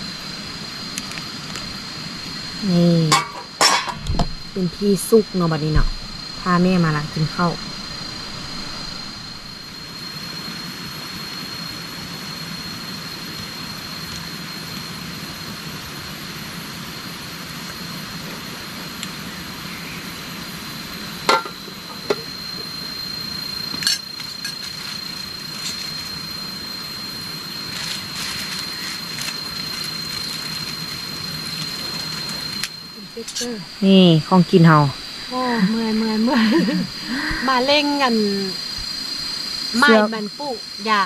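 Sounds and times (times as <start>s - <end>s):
high-pitched insect drone: 0.0s - 41.0s
steady outdoor hiss: 0.0s - 41.0s.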